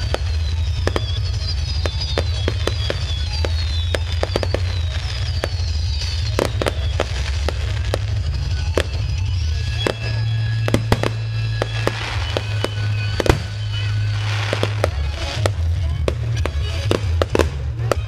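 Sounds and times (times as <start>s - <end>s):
fireworks bangs and crackling: 0.0s - 18.0s.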